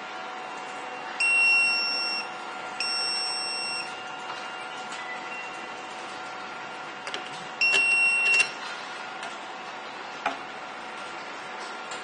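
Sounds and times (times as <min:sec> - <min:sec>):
high electronic beep: 0:01.2 - 0:03.9, 0:07.6 - 0:08.6.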